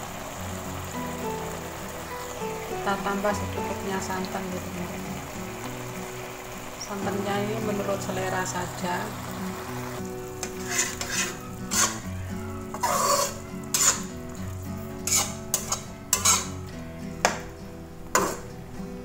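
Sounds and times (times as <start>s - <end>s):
metal spatula scraping a wok: 10.4s - 14.4s, 15.0s - 16.6s, 18.1s - 18.6s.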